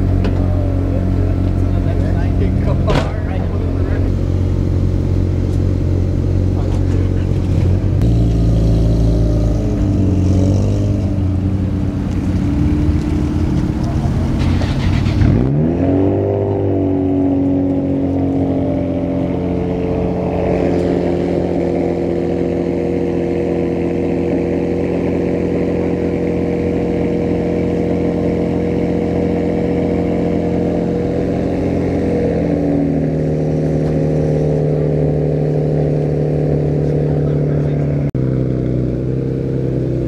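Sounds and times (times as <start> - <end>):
car engine idling: 0.0 - 15.5, 16.3 - 40.0
car engine revving: 0.0 - 40.0.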